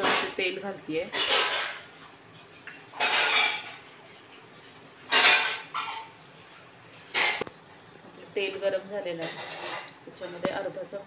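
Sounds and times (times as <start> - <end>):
steel kitchen utensils clattering: 0.0 - 3.9, 5.0 - 7.4, 9.0 - 10.8.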